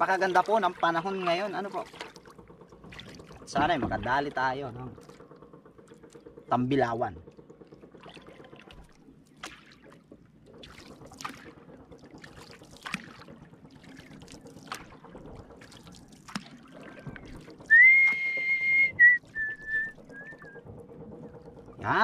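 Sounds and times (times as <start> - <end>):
paddle splashing and dripping: 0.0 - 22.0
person whistling: 17.7 - 20.6.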